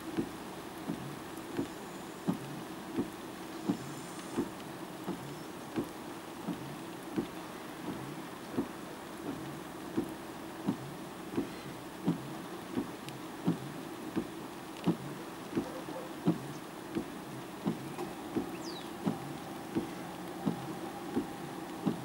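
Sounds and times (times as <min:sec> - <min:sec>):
faint steady hiss: 0:00.0 - 0:22.0
dull even knocks: 0:14.9 - 0:22.0.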